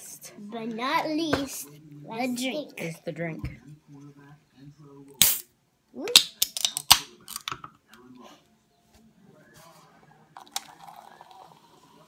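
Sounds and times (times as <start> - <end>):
soda can opening with hiss: 5.2 - 5.4.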